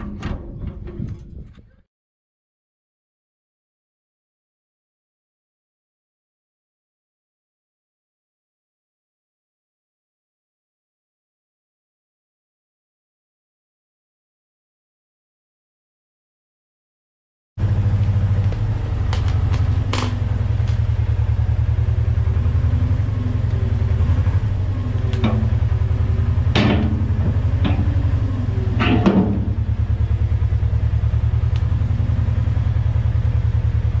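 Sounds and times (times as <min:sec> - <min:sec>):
metal clanks: 0:00.0 - 0:01.7, 0:24.8 - 0:30.1
loader engine running: 0:00.0 - 0:01.8, 0:17.6 - 0:34.0.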